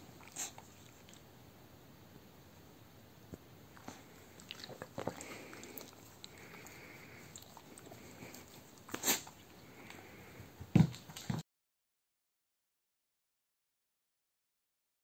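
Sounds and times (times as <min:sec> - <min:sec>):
dog licking lips: 0:00.2 - 0:01.3, 0:03.7 - 0:10.0.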